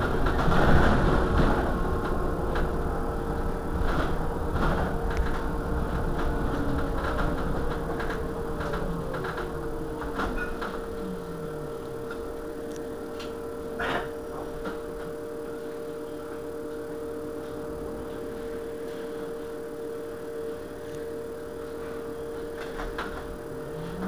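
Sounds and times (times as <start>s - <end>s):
low hum falling in pitch: 0.0s - 16.0s, 23.3s - 24.0s
electric bus whine: 0.0s - 24.0s.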